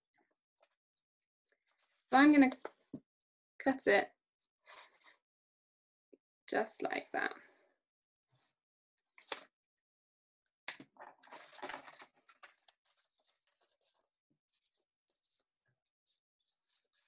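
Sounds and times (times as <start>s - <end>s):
paper rustling: 10.7s - 15.5s, 16.1s - 17.0s.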